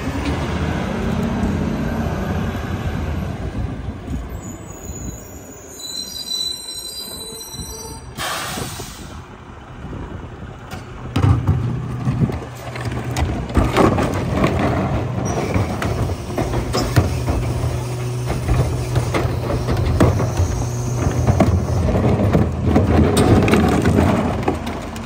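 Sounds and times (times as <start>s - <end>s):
diesel engine droning: 0.0s - 4.2s, 8.1s - 25.0s
air brake hiss: 8.1s - 9.2s
carts clanking against hopper: 10.6s - 25.0s.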